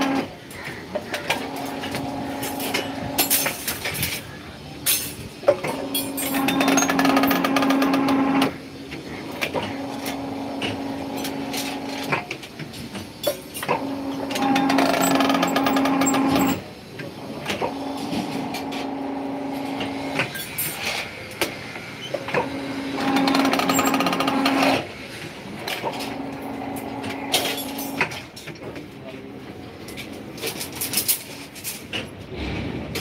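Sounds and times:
motor and gear hum: 1.1 - 3.8, 5.5 - 8.6, 9.2 - 12.6, 13.6 - 20.4, 21.4 - 24.9, 25.5 - 28.2.

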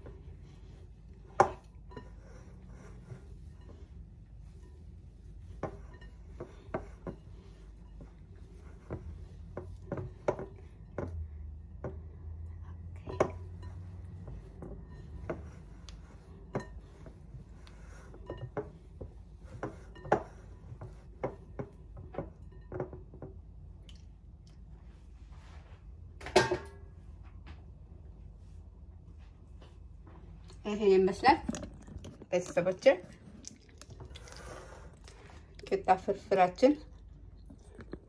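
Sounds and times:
soft rustling of flatbread: 0.0 - 22.3, 24.1 - 26.2.

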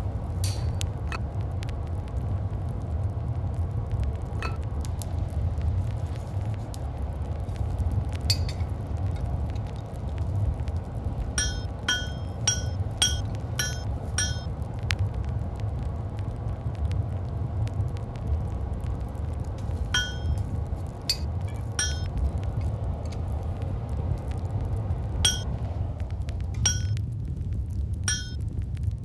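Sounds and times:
steady low rumble: 0.0 - 29.0
hammer ringing on anvil: 11.4 - 14.5, 20.0 - 20.3, 21.8 - 22.1, 26.7 - 26.9, 28.1 - 28.4.

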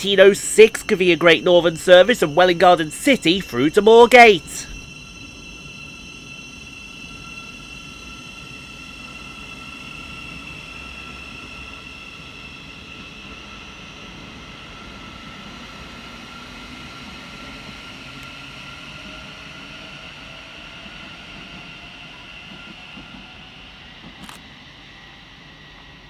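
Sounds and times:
electric train whine: 0.0 - 26.0
train low rumble: 0.0 - 26.0.

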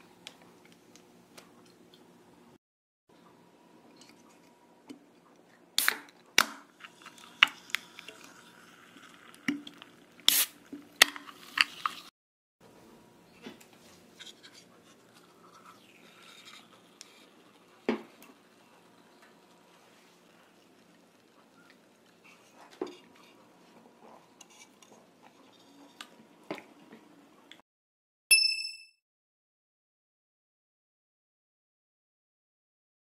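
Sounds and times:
cans clicking and cracking: 5.8 - 12.1.

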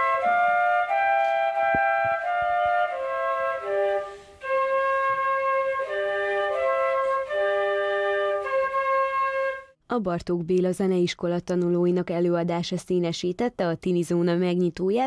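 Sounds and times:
two flutes playing a slow duet: 0.0 - 9.8.

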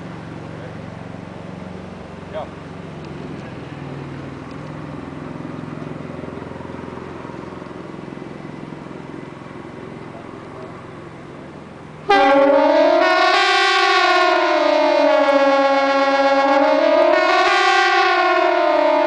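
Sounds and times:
pneumatic siren wailing: 12.1 - 19.0.

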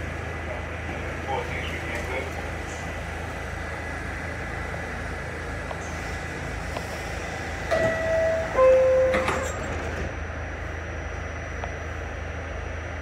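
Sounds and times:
steady low train hum: 0.0 - 13.0
two-note door chime: 7.7 - 9.5.

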